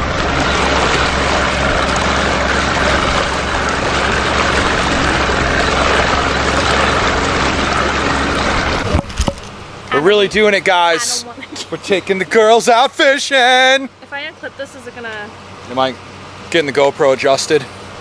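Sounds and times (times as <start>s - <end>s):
low hum: 0.0s - 10.7s
boat motor droning: 0.0s - 18.0s.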